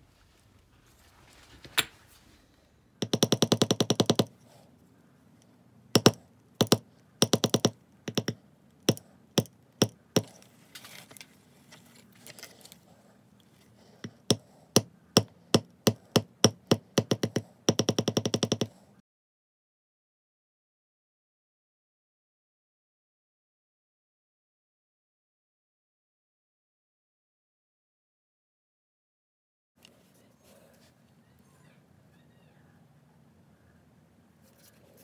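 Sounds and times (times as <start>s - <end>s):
mallet tapping leather stamping tool: 3.0s - 4.4s, 6.0s - 10.4s, 14.0s - 18.8s.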